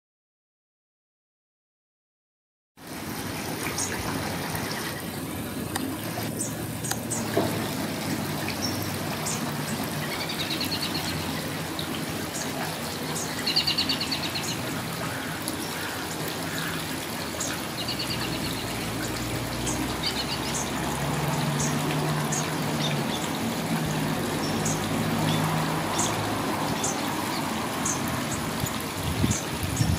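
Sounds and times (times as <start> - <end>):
stream trickling over rocks: 2.8 - 29.9
high bird calls and trills: 8.4 - 11.6, 12.3 - 23.4.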